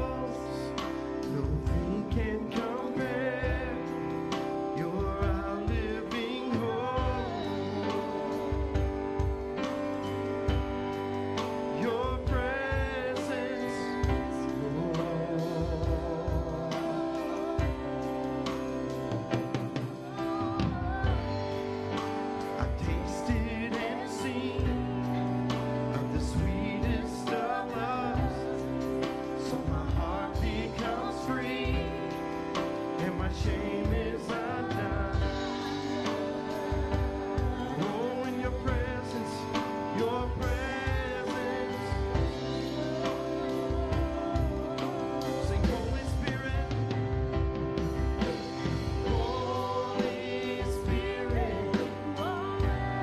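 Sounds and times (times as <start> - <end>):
worship band playing slow song: 0.0 - 53.0
woman singing with vibrato: 19.9 - 21.8, 40.8 - 46.1, 49.1 - 53.0.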